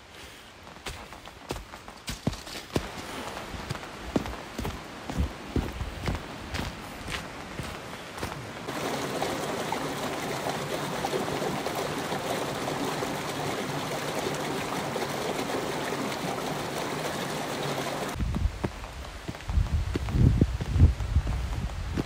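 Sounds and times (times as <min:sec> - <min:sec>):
footsteps on a trail: 0:00.0 - 0:08.7, 0:18.1 - 0:22.0
stream rushing over boulders: 0:02.5 - 0:22.0.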